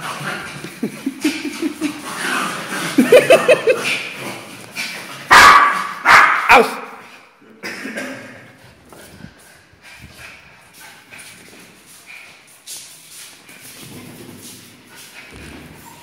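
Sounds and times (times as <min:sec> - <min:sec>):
sharp dog barks: 0:05.3 - 0:07.0.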